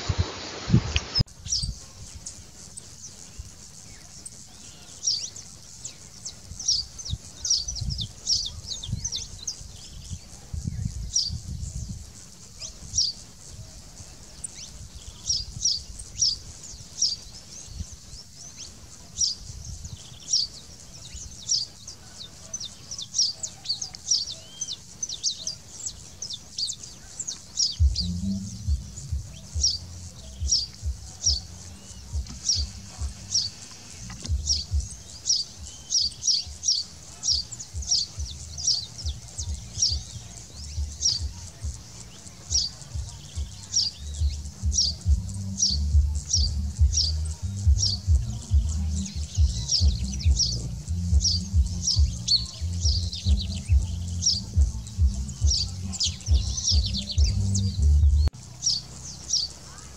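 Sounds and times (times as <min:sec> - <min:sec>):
finch chirping: 0:14.4 - 0:59.9.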